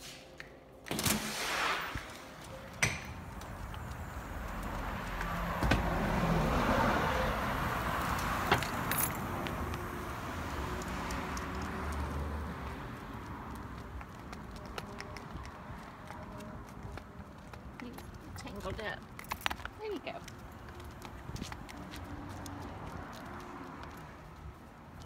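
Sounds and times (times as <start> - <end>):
passing car road noise: 1.0 - 19.2, 20.3 - 25.0
metal jingling: 8.6 - 9.2.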